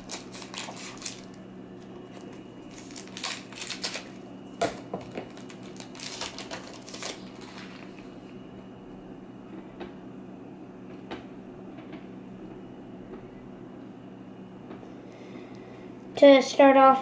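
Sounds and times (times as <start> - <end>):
cards clicking and rustling: 0.0 - 1.4, 2.1 - 8.0
scissors snipping foil: 0.0 - 1.4, 2.7 - 4.2, 5.3 - 7.9
wrapper crinkling: 0.0 - 8.1
steady low hum: 0.0 - 17.0.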